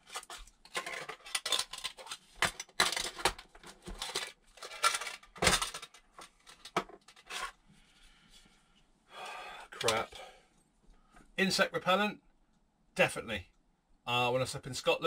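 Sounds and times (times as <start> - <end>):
plastic packaging rustling: 0.0 - 7.6.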